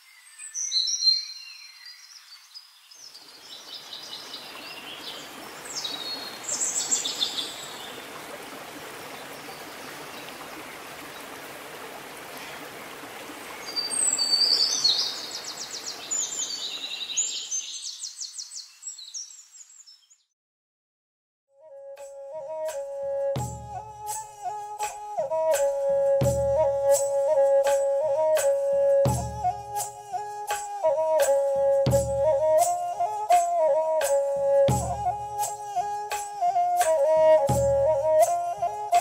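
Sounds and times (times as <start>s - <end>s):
birds chirping and trilling: 0.0s - 8.1s, 13.5s - 20.3s
stream rushing: 3.4s - 17.4s, 22.7s - 39.0s.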